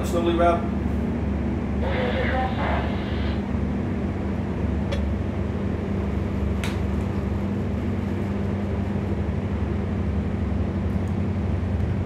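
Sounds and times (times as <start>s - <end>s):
drilling rig engine droning: 1.7s - 4.0s.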